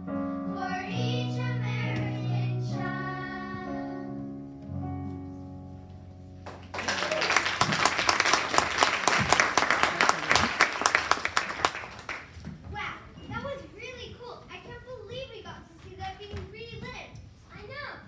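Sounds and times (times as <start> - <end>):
audience applauding: 6.4 - 12.3.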